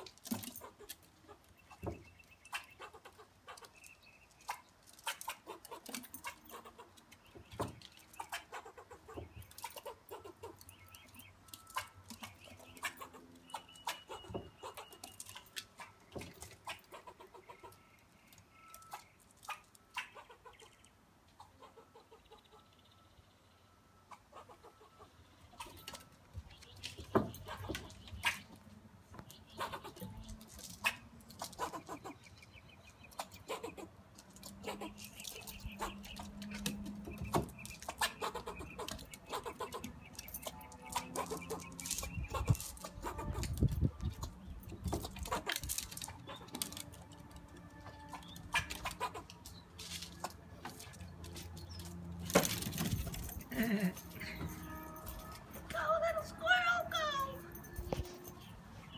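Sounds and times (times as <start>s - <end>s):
squirrel chattering alarm calls: 0.6s - 18.0s, 18.8s - 23.0s, 24.0s - 25.8s, 29.3s - 46.6s, 48.0s - 50.3s.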